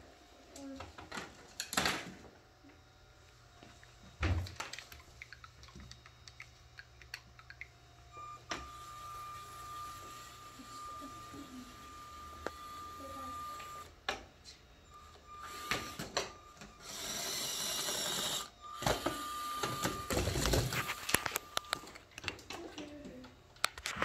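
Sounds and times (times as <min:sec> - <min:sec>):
robot electric motors whining: 0:02.6 - 0:22.2
plastic parts clicking and knocking: 0:04.4 - 0:07.8.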